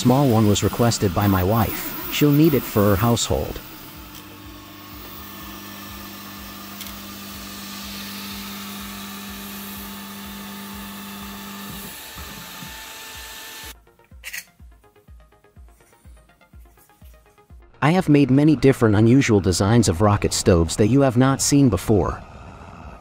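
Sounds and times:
machine hum: 0.0 - 13.8
three d printer whirring: 0.7 - 13.8
music with steady beat: 13.7 - 17.7.

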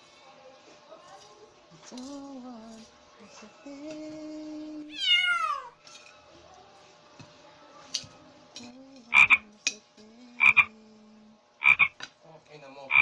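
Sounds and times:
animal croaking call: 9.1 - 9.4, 10.4 - 10.7, 11.6 - 12.0.

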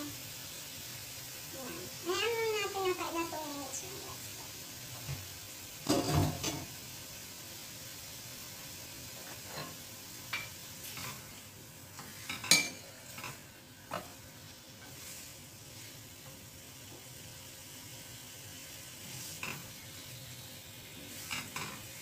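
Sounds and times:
chicken sizzling in a pan: 0.0 - 22.0
spatula knocking and scraping pan: 5.8 - 6.7, 19.1 - 19.8.

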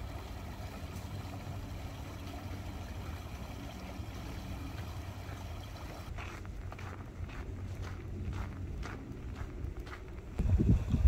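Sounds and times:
footsteps on dirt path: 6.1 - 10.4.

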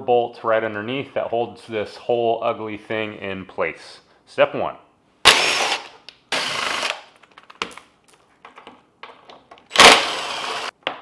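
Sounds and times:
cordless power driver spinning: 5.3 - 7.0, 9.7 - 10.7.

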